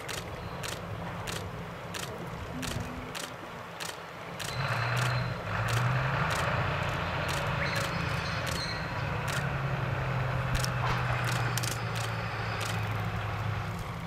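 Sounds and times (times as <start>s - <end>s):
sharp clicks: 0.0s - 6.6s, 7.2s - 9.5s, 10.5s - 12.9s
diesel engine droning: 4.3s - 14.0s.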